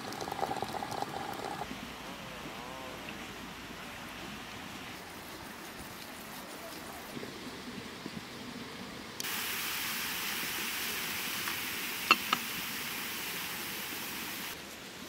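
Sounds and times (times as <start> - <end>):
steady hissing: 9.2 - 14.7.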